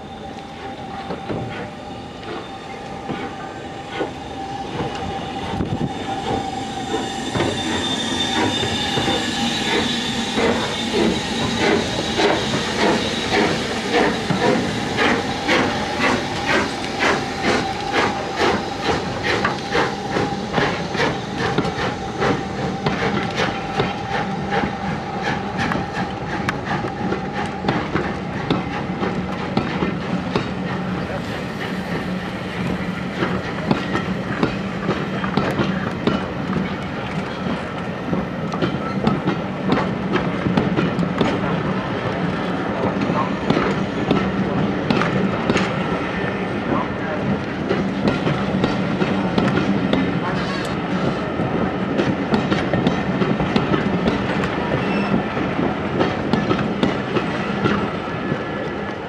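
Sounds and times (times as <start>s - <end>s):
steam locomotive exhaust beats: 0.0s - 59.0s
steam hiss: 0.5s - 29.9s.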